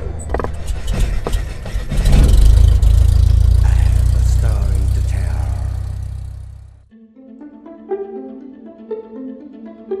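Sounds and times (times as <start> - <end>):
deep low drone: 1.0 - 6.9.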